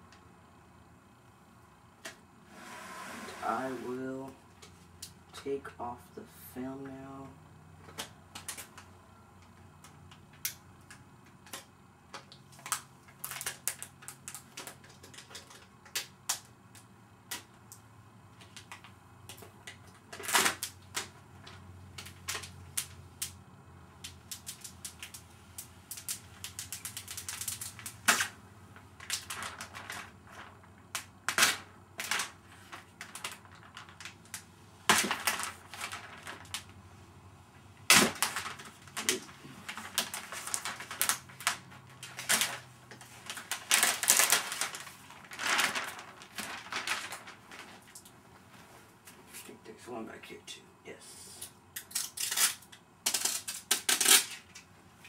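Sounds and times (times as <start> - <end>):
plastic film peeling: 11.4 - 16.5, 24.0 - 28.4, 29.0 - 36.8, 37.9 - 48.2, 51.8 - 54.7.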